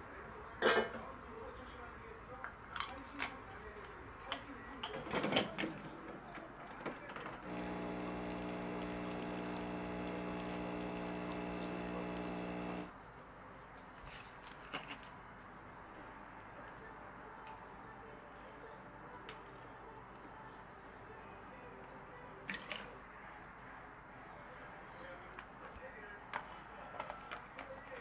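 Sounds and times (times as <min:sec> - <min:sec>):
electric appliance humming: 0:07.4 - 0:12.9.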